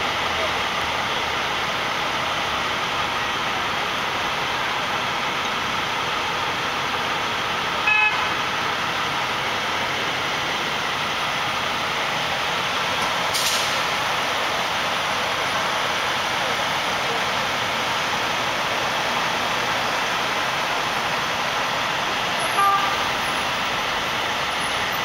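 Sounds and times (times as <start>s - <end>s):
city street traffic: 0.0s - 25.0s
car horn toot: 7.8s - 8.3s, 22.4s - 23.1s.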